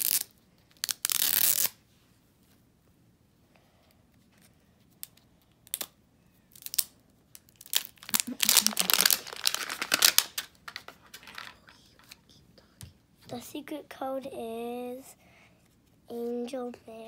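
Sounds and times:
plastic tearing: 0:00.0 - 0:01.8, 0:05.0 - 0:12.1
plastic wrapping crinkling: 0:06.5 - 0:12.2.

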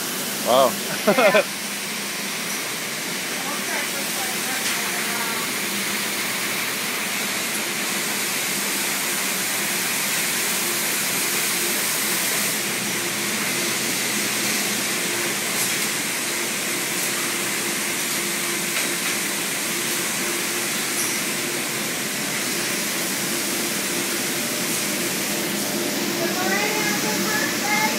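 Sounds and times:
low machine hum: 0:18.7 - 0:27.9.

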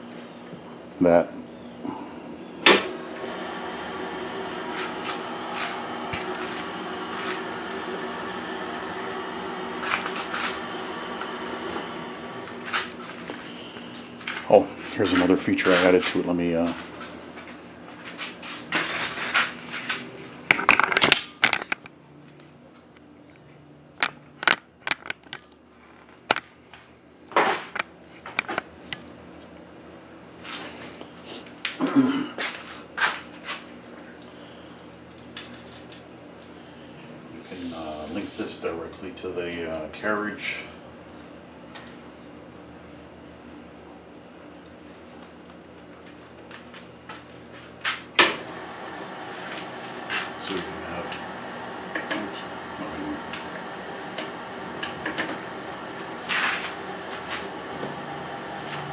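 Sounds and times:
lathe drive humming: 0:02.3 - 0:15.9, 0:48.2 - 0:58.9
lathe switch clunk: 0:02.6 - 0:03.3
sharp clicks and knocks: 0:24.0 - 0:26.5, 0:27.6 - 0:29.0.

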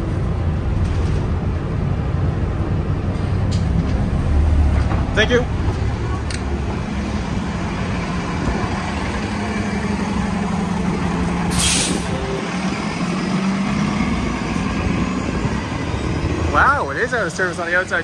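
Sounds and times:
bus engine running: 0:00.0 - 0:18.0
air brakes hissing: 0:11.5 - 0:12.2.

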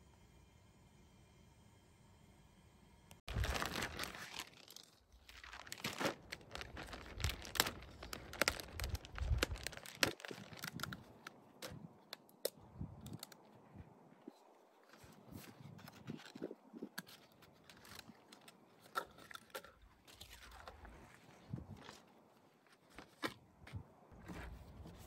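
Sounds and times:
plastic wrapping tearing: 0:03.3 - 0:11.8.

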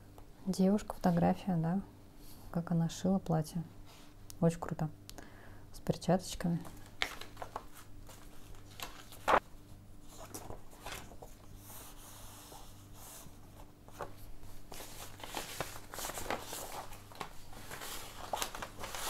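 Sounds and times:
paper rustling: 0:06.6 - 0:19.0.

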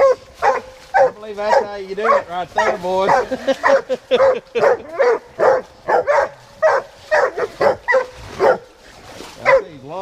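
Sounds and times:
hounds barking: 0:00.0 - 0:09.8.

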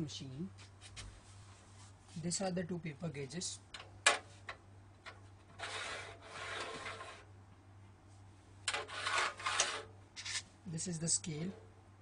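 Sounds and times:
metal gauges scraping on rail: 0:05.5 - 0:07.3, 0:08.7 - 0:10.4.

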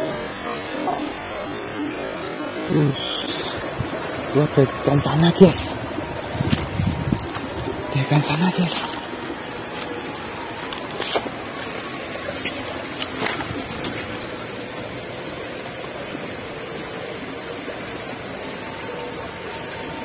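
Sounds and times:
stream flowing over rocks: 0:00.0 - 0:20.0.

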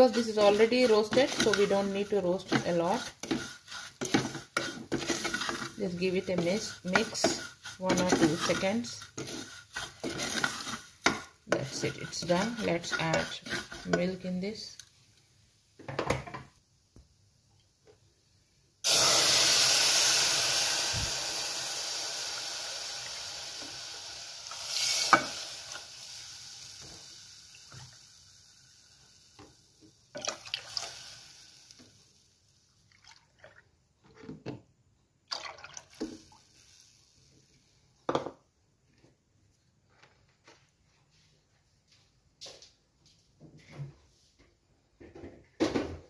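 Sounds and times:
milk splashing into pan: 0:30.2 - 0:31.0.

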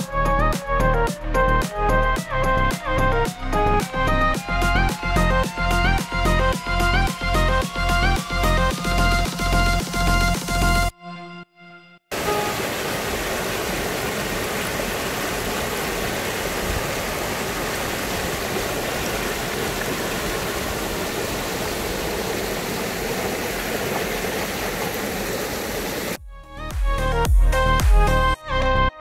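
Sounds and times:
stream rushing over stones: 0:12.1 - 0:26.2.

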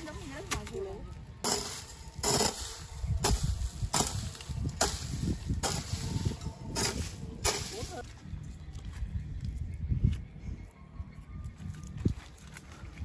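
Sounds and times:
hoe chopping into soil: 0:01.5 - 0:06.1.

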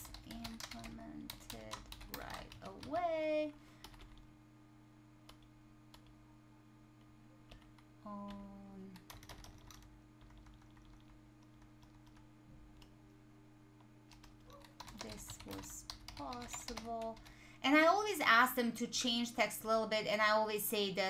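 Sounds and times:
faint keyboard typing: 0:00.0 - 0:03.2, 0:03.8 - 0:04.3, 0:07.4 - 0:13.0, 0:14.1 - 0:17.4.

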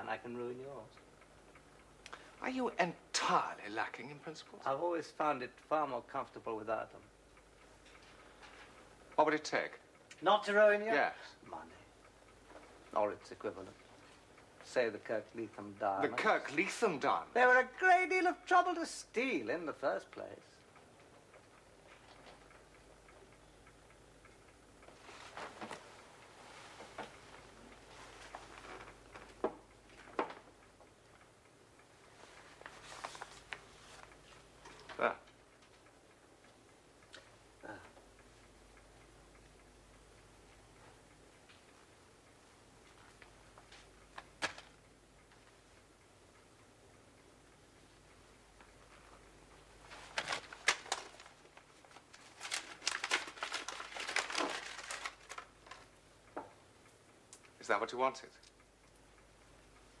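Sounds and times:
faint room tone hum: 0:00.0 - 1:00.0
crinkling and rustling: 0:24.8 - 0:30.6, 0:32.1 - 0:35.0, 0:42.8 - 0:44.8, 0:49.8 - 0:56.0.

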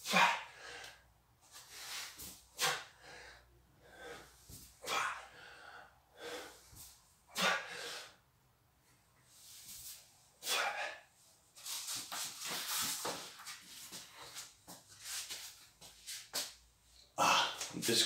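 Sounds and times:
man breathing hard: 0:00.0 - 0:08.3.

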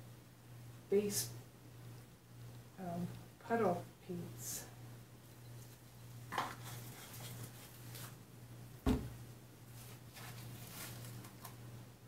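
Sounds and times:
dull thump: 0:08.8 - 0:09.2.

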